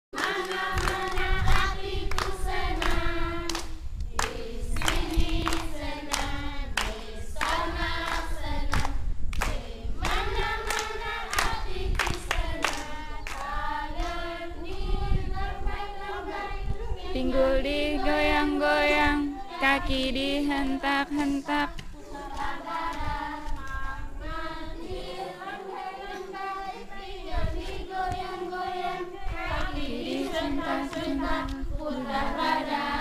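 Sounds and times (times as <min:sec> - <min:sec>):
children singing in unison: 0:00.2 - 0:33.0
woman singing: 0:15.0 - 0:33.0.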